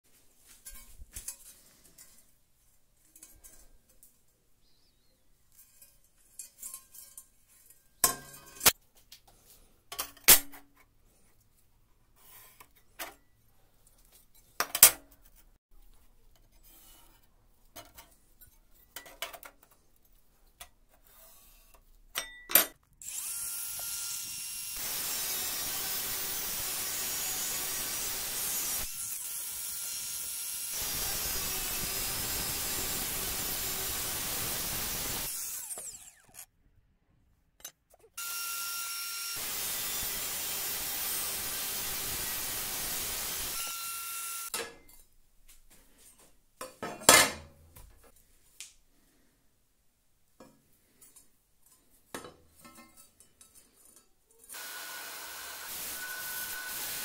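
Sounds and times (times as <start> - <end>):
angle grinder cutting steel: 23.0 - 36.5, 38.2 - 44.6, 54.5 - 57.0.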